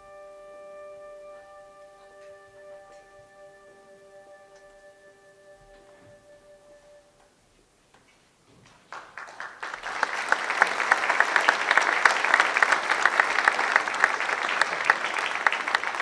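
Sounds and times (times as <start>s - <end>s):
audience applauding: 8.8s - 16.0s.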